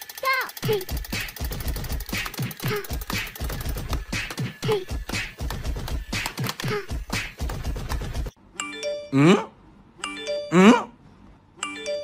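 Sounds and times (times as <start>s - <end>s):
toy electronic gunfire: 0.0s - 8.3s.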